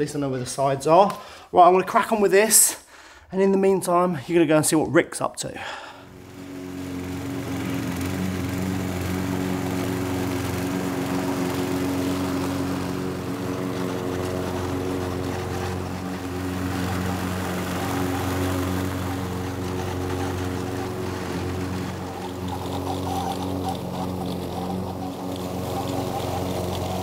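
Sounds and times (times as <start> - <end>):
lawn mower running: 5.6 - 27.0.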